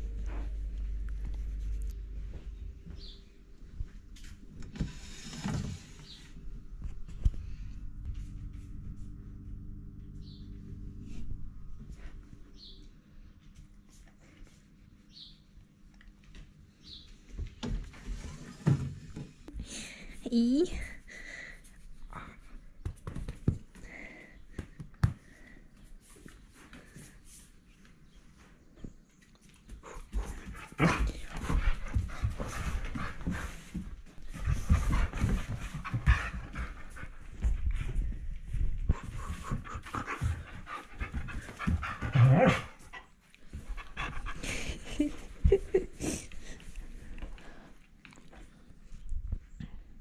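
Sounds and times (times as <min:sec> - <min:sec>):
dog panting: 0:29.7 - 0:38.1, 0:38.9 - 0:46.8.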